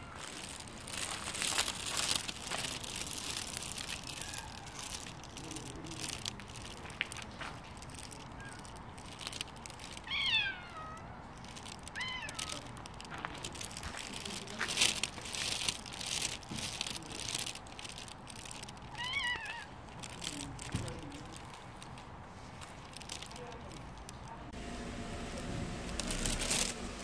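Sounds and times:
cat meowing: 0.0s - 0.2s, 4.0s - 5.0s, 8.3s - 8.7s, 10.0s - 12.8s, 18.9s - 19.8s
short crunching noises: 0.0s - 27.0s.

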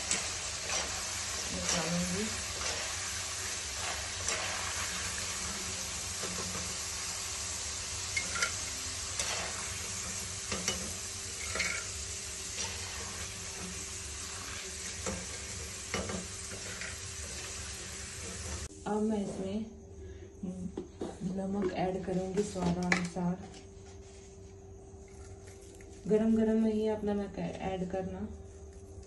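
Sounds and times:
skimmer clicking and scraping pan: 0.0s - 6.8s, 8.1s - 11.9s
fries sizzling in hot oil: 0.0s - 18.7s.

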